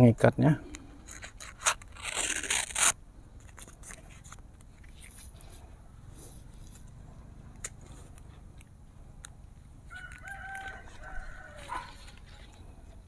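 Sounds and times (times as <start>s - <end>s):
rooster crowing: 9.9s - 12.2s.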